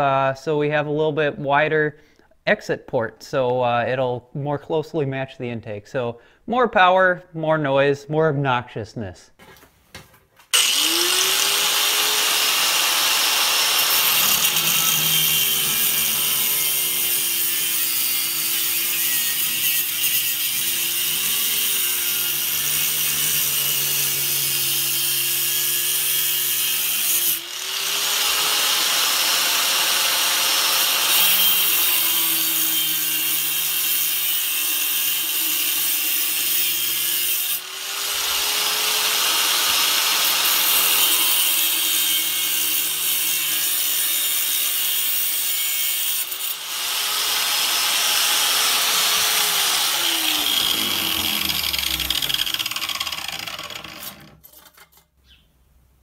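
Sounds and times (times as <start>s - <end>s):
grinder winding down: 10.5s - 54.4s
angle grinder cutting metal: 10.5s - 54.9s.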